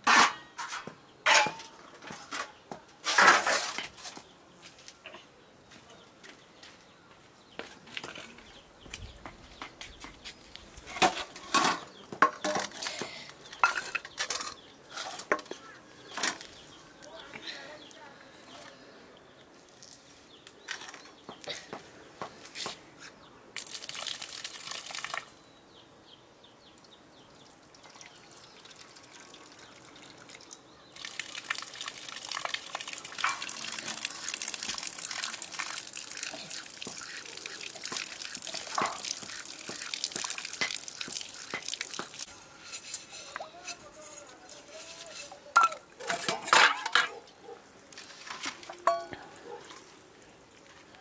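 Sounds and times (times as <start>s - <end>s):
water splashing and trickling: 23.5s - 25.8s, 26.6s - 51.0s
water dripping: 23.6s - 25.4s, 26.8s - 43.5s.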